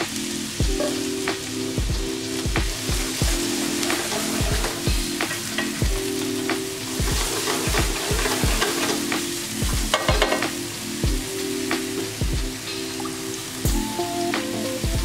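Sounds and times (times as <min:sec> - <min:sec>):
onion sizzling in a frying pan: 0:00.0 - 0:14.8
background music with steady beat: 0:00.0 - 0:15.0
spatula scraping a pan: 0:03.2 - 0:05.8, 0:07.0 - 0:09.4.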